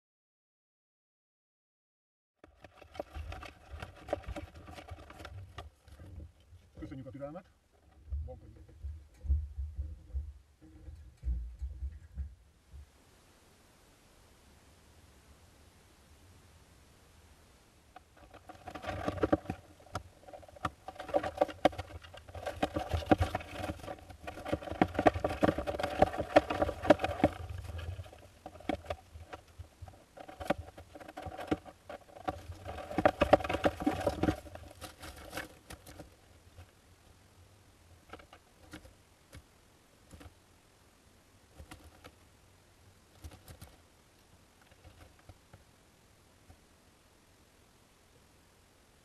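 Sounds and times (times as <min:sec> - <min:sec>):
chicks scratching in nest box: 0:02.5 - 0:06.4, 0:18.0 - 0:36.7, 0:41.5 - 0:42.2, 0:43.1 - 0:43.8, 0:44.6 - 0:45.4.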